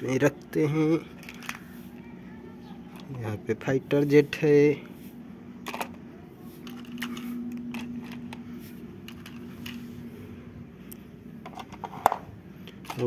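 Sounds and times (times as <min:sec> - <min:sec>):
faint steady hum: 0:00.0 - 0:13.0
plastic toys clicking and knocking: 0:01.1 - 0:01.7, 0:05.6 - 0:06.0, 0:06.6 - 0:08.4, 0:09.0 - 0:09.8.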